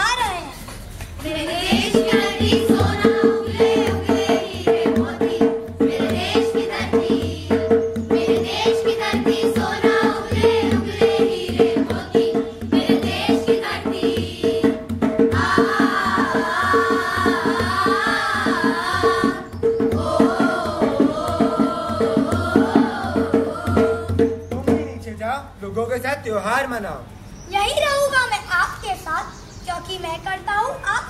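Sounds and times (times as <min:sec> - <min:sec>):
group of voices singing: 0:01.2 - 0:24.5
hand drum beating: 0:01.7 - 0:25.1.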